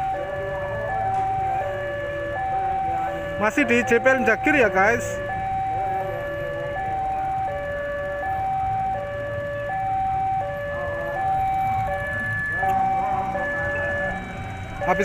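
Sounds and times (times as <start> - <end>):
two-tone crossing alarm: 0.0 - 15.0.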